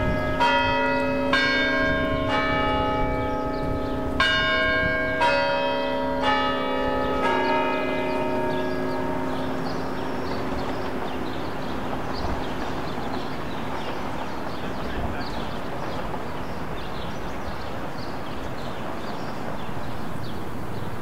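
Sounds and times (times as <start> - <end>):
church bells humming: 0.0 - 21.0
city ambience: 0.0 - 21.0
small birds chirping: 7.0 - 21.0.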